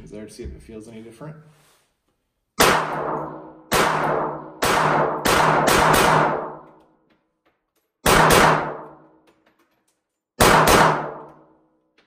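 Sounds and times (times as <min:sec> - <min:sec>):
pistol shots with ringing tail: 0:02.6 - 0:06.7, 0:08.0 - 0:09.1, 0:10.4 - 0:11.6.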